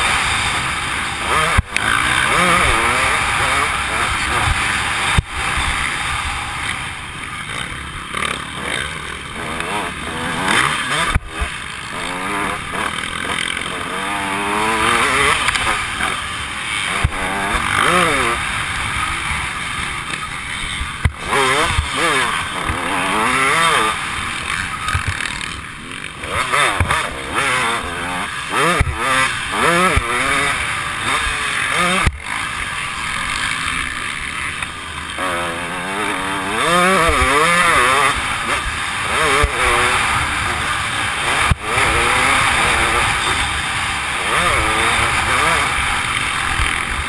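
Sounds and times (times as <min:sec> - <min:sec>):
dirt bike engine revving: 0:00.0 - 0:47.0
steady rushing noise: 0:00.0 - 0:47.0.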